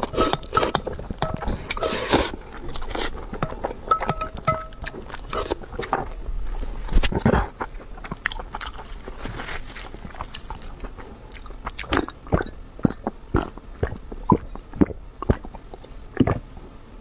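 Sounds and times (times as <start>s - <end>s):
person gulping a drink: 11.8s - 16.4s.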